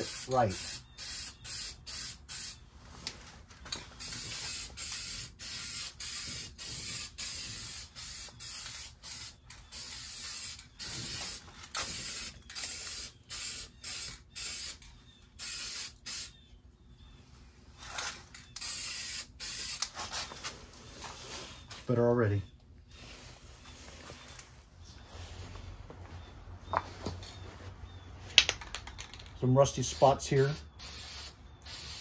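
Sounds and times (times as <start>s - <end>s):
spray paint can hissing: 0.0s - 2.6s, 4.0s - 14.8s, 15.4s - 16.3s, 18.6s - 19.9s, 29.8s - 32.0s.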